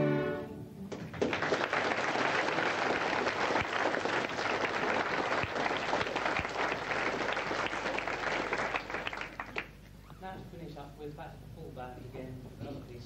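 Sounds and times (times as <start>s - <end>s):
audience applauding: 0.9s - 9.8s.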